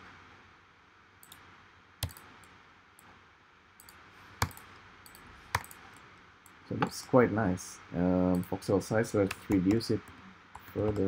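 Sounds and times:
computer mouse clicks: 1.2 - 3.1, 3.8 - 6.9, 9.2 - 11.0.

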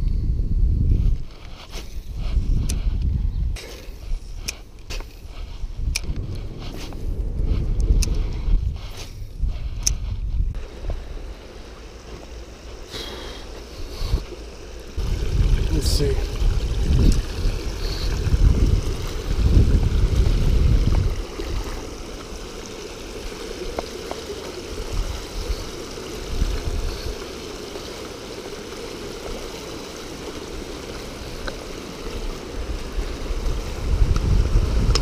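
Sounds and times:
wind buffeting microphone: 0.0 - 12.8, 13.6 - 35.0
river water rushing over weir: 21.0 - 34.0.

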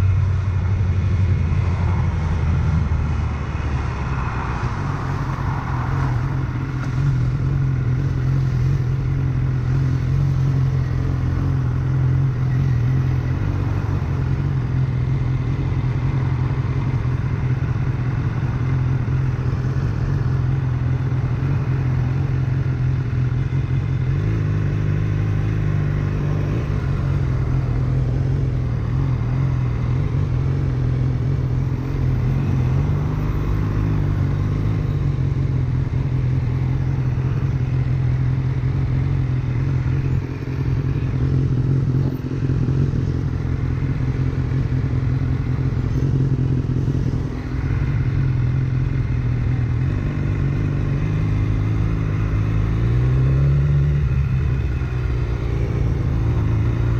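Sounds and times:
motorcycle engine cruising: 0.0 - 56.9.

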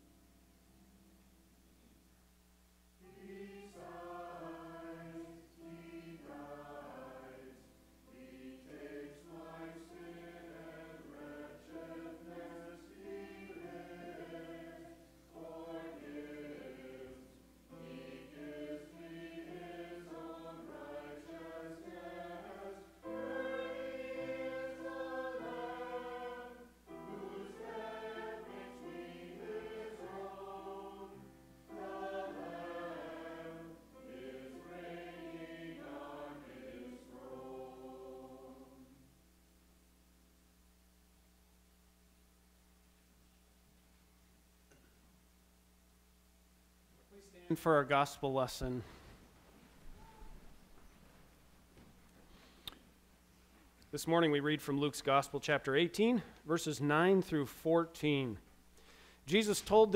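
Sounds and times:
choir singing a hymn: 3.0 - 39.1.

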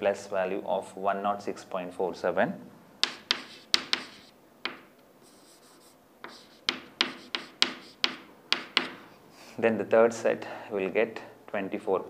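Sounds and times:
chalk tapping and scratching: 3.0 - 9.1.

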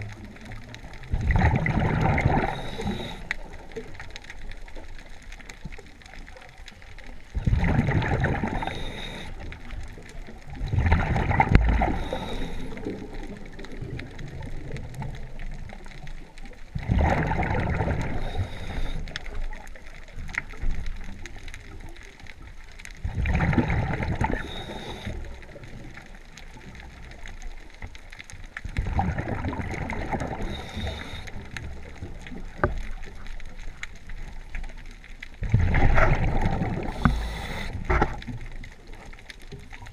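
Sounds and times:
exhaled bubbles rushing: 0.0 - 4.1, 7.3 - 15.7, 16.7 - 20.6, 23.0 - 26.2, 28.7 - 33.0, 35.4 - 39.0
regulator hiss: 2.5 - 3.3, 8.5 - 9.4, 11.9 - 12.9, 18.2 - 19.2, 24.4 - 25.3, 30.4 - 31.4, 36.9 - 37.8.

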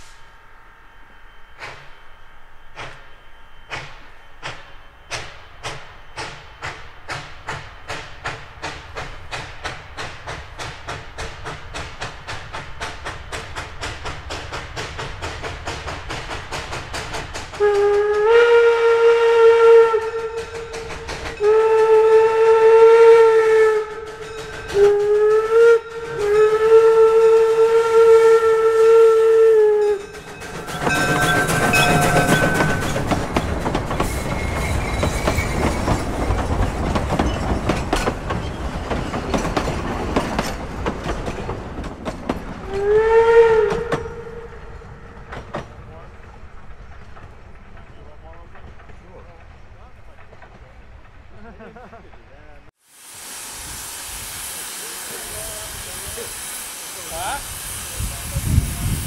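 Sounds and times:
train rumbling clatter: 2.7 - 18.6, 19.8 - 22.4, 23.6 - 27.8, 29.7 - 52.6
steam whistle blasts: 17.5 - 33.0, 42.6 - 45.2, 53.1 - 59.0.

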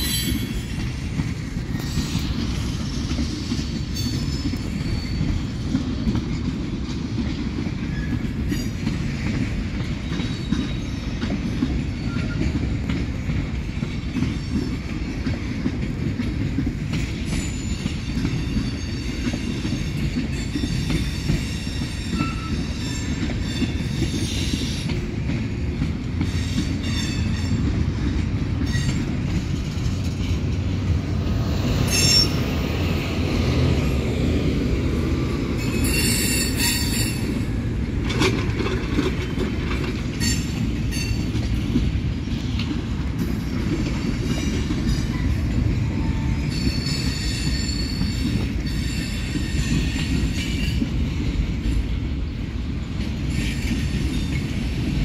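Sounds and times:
train wheels rumbling on rail: 0.0 - 55.0
high-pitched wheel squeal: 20.5 - 24.8, 31.9 - 32.4, 35.6 - 37.4.

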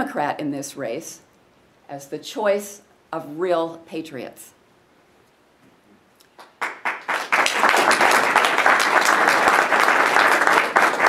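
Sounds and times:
audience applause: 6.4 - 11.0.

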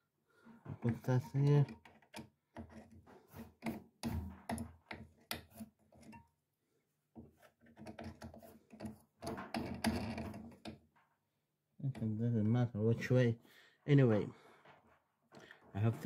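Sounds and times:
clicks and knocks of pulley and belt: 0.8 - 6.3, 7.2 - 11.1.

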